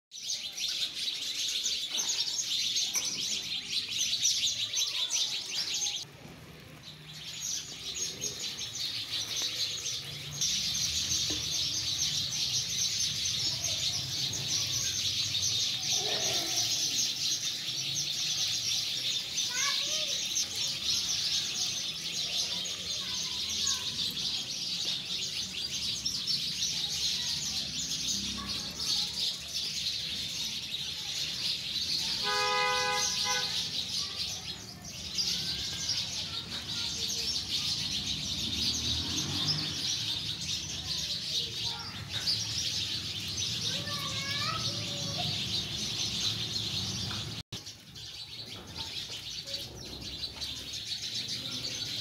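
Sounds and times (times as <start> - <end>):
birds chirping: 0.1 - 52.0
vehicle horn: 32.2 - 33.6.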